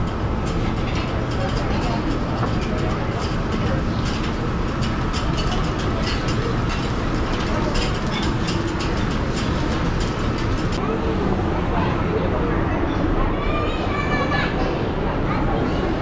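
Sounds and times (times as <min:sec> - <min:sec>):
low kitchen rumble: 0:00.0 - 0:12.6.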